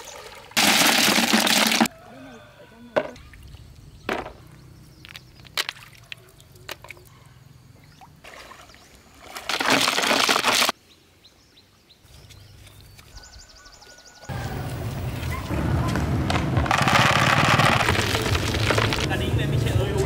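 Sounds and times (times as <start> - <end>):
water sloshing and splashing: 0.0 - 1.9, 7.8 - 10.7.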